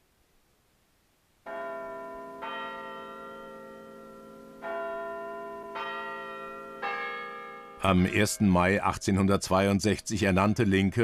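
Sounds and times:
church bells ringing: 1.5 - 9.4.

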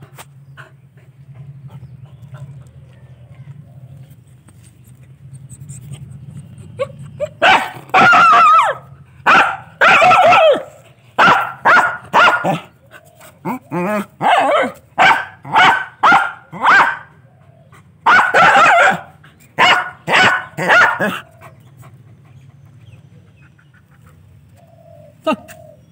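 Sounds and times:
dog barking: 7.2 - 12.7, 14.2 - 17.2, 18.0 - 21.3.

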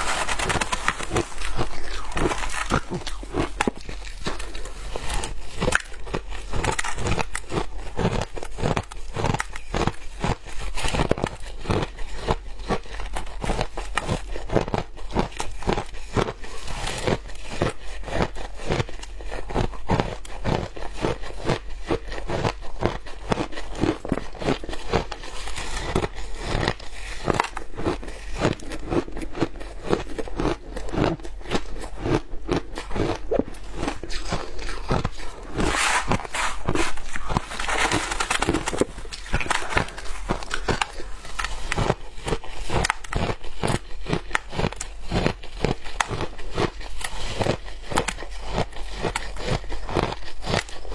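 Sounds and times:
chewing shaved ice crunches: 0.0 - 50.9.

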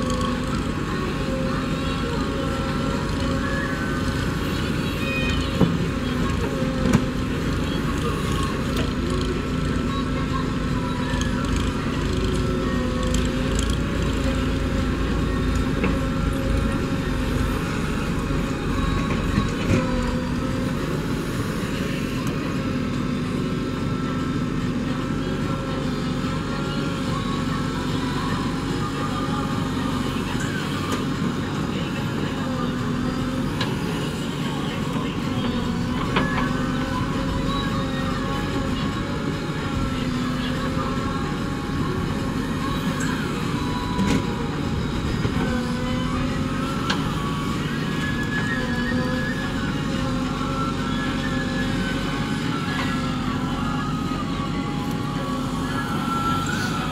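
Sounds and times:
diesel engine under load: 0.0 - 56.9
hydraulic whine: 0.0 - 56.9.

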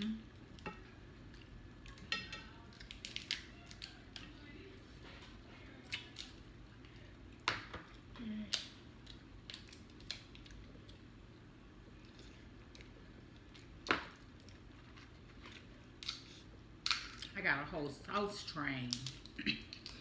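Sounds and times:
shells cracking and snapping: 2.7 - 4.3, 7.4 - 11.0, 15.4 - 17.4, 18.9 - 20.0.

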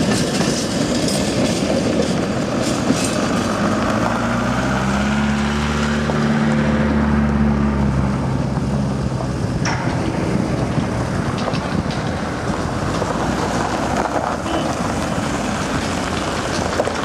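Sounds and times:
freight train wagons rumbling: 0.0 - 17.0
wind buffeting microphone: 7.9 - 17.0.

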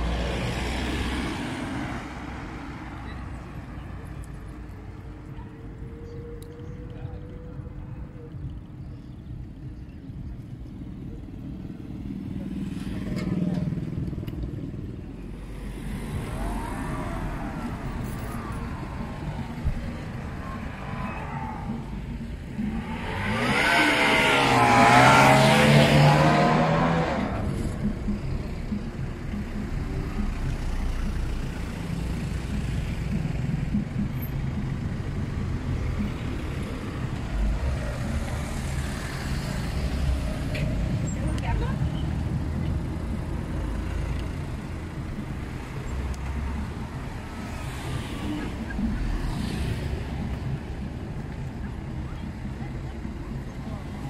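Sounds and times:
traffic engine rumble: 0.0 - 54.0
vehicle passing close: 15.3 - 28.2.

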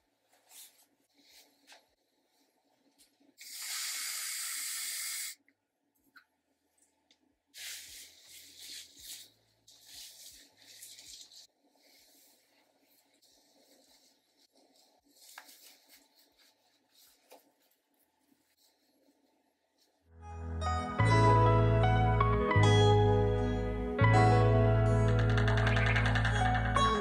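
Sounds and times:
spray misting hiss: 3.4 - 5.4.

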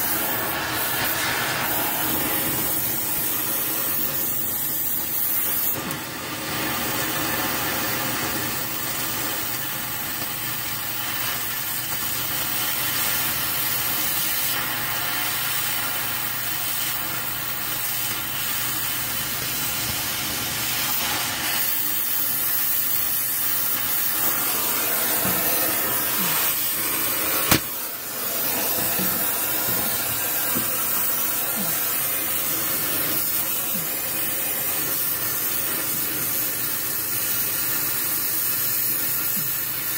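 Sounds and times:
cutting torch hissing: 0.0 - 39.9
sharp pop: 27.4 - 27.9.

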